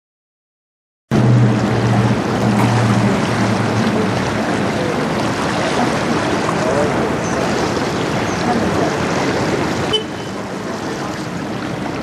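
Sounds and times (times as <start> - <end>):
waves on rocky shore: 1.1 - 12.0
wind: 1.1 - 12.0
faint voices talking: 1.5 - 12.0.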